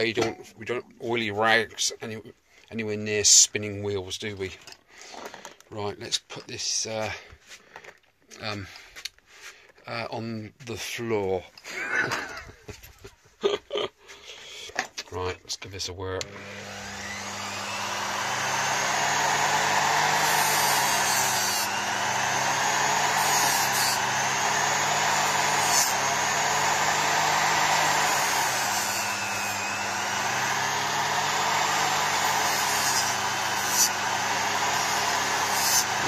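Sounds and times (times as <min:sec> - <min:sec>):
bench grinder motor whine: 0:16.2 - 0:36.0.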